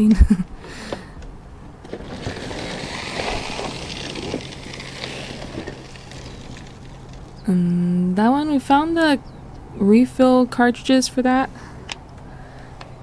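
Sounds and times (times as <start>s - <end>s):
rustling of trash and packaging: 1.8s - 7.5s.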